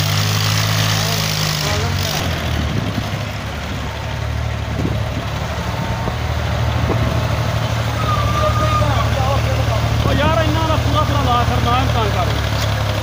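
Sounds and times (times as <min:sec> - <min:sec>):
diesel tractor engines under load: 0:00.0 - 0:13.0.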